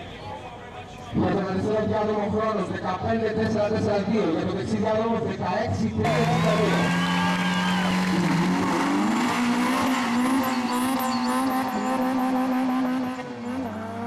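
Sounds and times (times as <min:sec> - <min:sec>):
drag car engines revving: 0:06.0 - 0:14.0.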